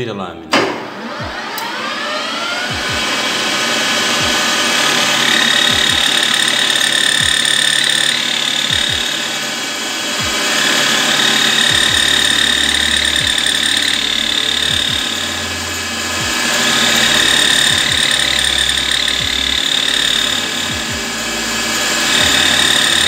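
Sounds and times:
grinding stone on metal: 10.4 - 23.0.

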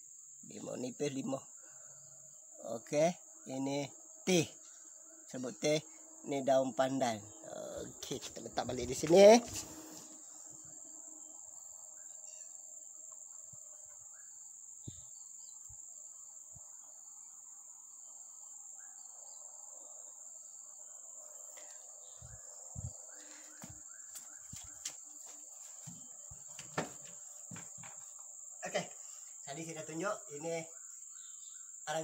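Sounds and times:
insects chirring: 0.0 - 32.0
soft thumps: 25.8 - 28.1.

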